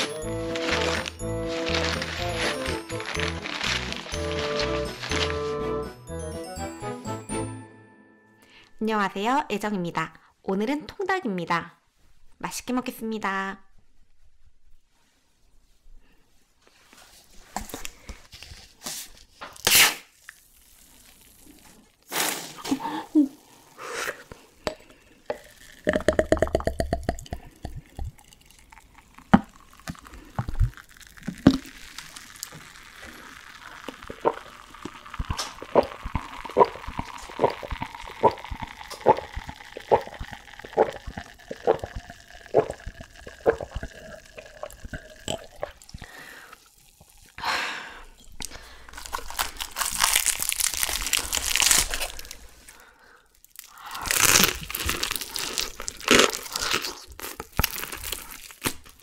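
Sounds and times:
crunching fried chicken skin: 0:00.0 - 0:05.6, 0:28.4 - 0:43.5, 0:48.8 - 0:52.7, 0:53.3 - 0:59.0
beer glugging into a glass: 0:25.3 - 0:47.4
gulping: 0:34.1 - 0:46.1.

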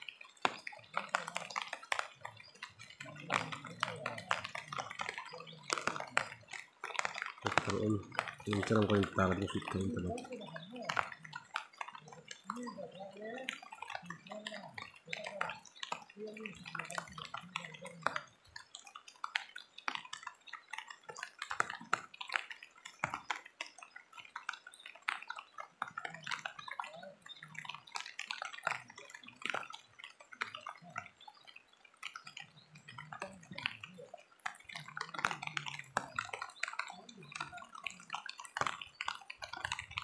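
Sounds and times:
water splashing and dripping: 0:00.0 - 0:40.0.

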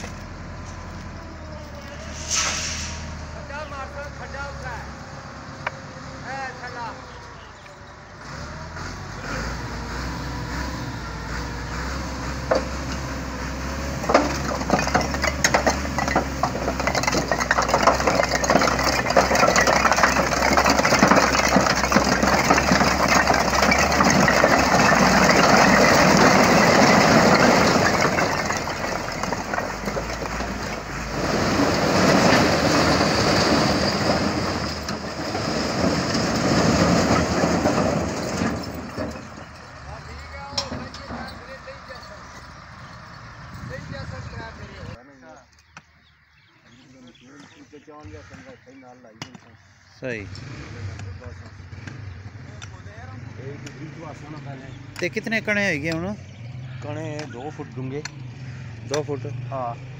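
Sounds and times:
tractor engine running: 0:03.6 - 0:45.0
bricks clattering onto ground: 0:13.9 - 0:42.5.

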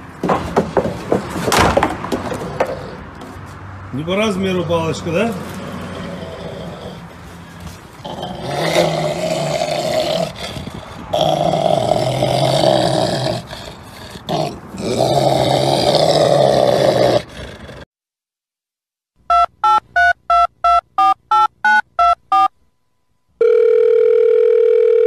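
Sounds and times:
rough animal cry: 0:05.2 - 0:17.8
telephone keypad dialing tones: 0:19.3 - 0:22.5, 0:23.4 - 0:25.0.

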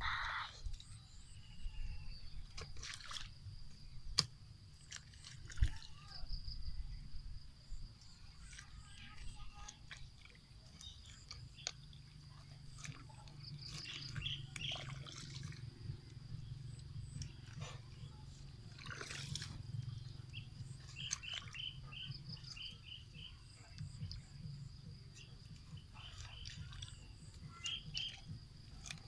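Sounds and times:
hands splashing in water: 0:02.5 - 0:03.4, 0:08.4 - 0:16.0, 0:18.7 - 0:22.7.

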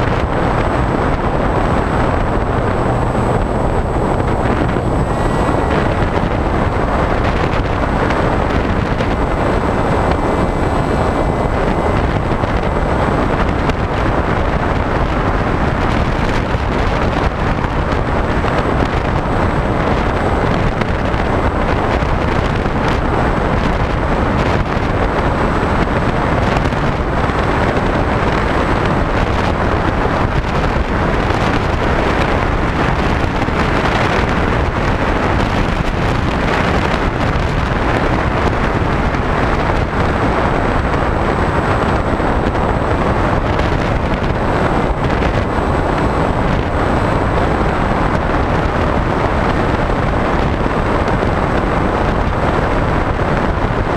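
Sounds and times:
electric motor and propeller: 0:00.0 - 0:53.9
wind buffeting microphone: 0:00.0 - 0:53.9.

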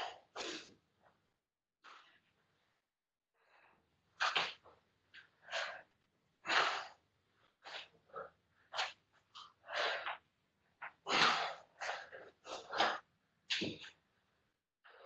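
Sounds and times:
heavy breathing: 0:09.4 - 0:10.2.

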